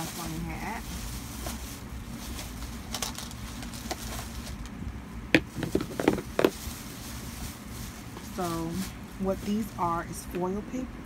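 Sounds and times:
plastic tubes knocking together: 0:05.4 - 0:06.5.

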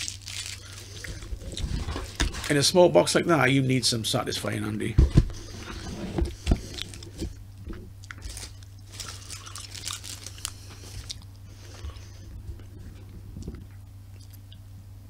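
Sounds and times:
person chewing crunchy snacks: 0:00.0 - 0:01.8, 0:08.0 - 0:12.0
low electrical hum: 0:00.0 - 0:15.0.

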